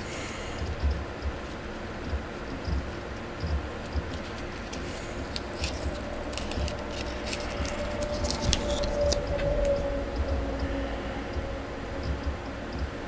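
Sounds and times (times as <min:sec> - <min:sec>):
plastic clicks and crinkles: 0:02.8 - 0:09.9.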